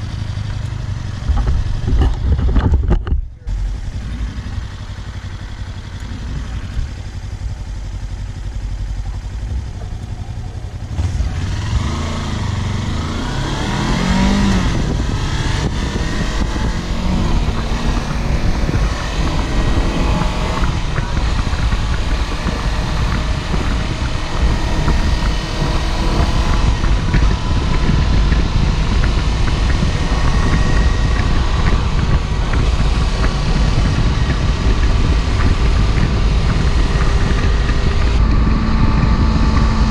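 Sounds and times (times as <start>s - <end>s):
wind rush: 0.0s - 7.6s, 10.6s - 39.9s
motorcycle engine revving: 0.0s - 39.9s.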